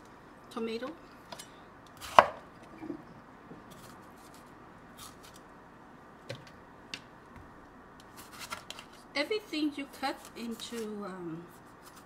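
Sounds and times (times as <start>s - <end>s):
knife cutting tomatoes: 2.0s - 2.4s.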